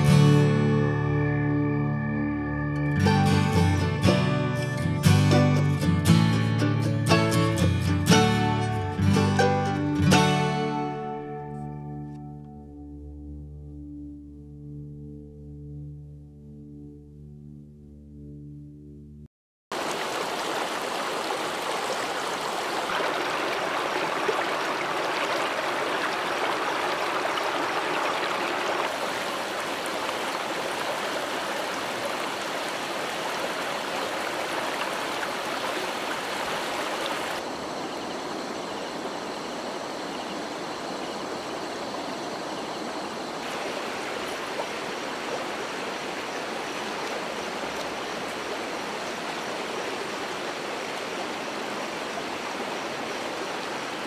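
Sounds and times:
stream rushing over rocks: 19.7 - 54.0.

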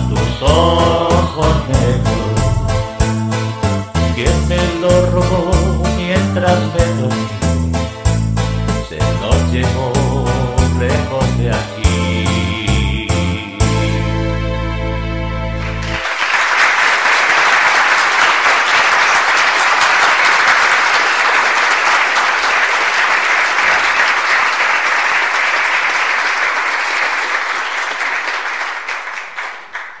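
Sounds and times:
audience applause: 15.6 - 30.0.

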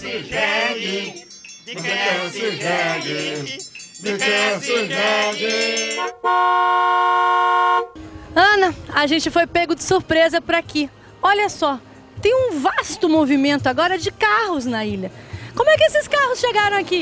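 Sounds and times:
background music with singing: 0.0 - 6.1
loud steady chord-like tone: 0.0 - 8.3.

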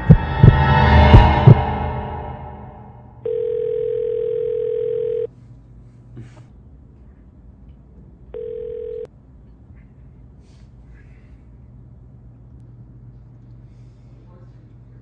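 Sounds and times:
phone ringing: 3.2 - 5.3, 8.3 - 9.1.

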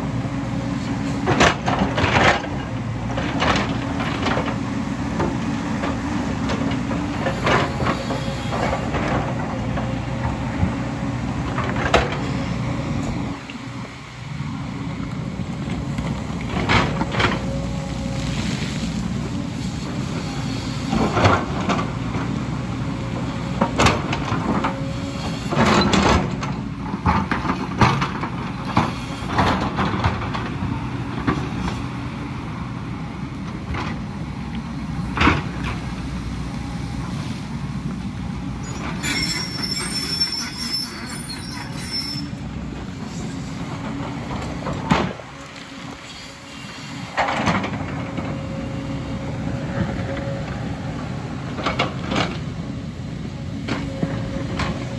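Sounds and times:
excavator diesel engine under load: 0.0 - 54.9
high metallic squeal: 38.6 - 42.4.

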